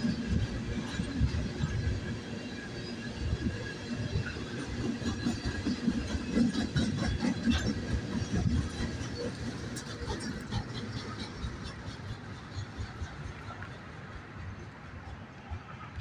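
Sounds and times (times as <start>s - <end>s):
train wheel rumble: 0.0s - 16.0s
wheels clacking over rails: 0.0s - 16.0s.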